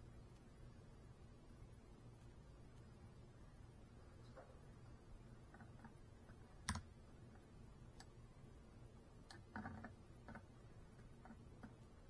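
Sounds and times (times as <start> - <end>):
faint clicks and taps: 5.4 - 8.2, 9.2 - 12.0.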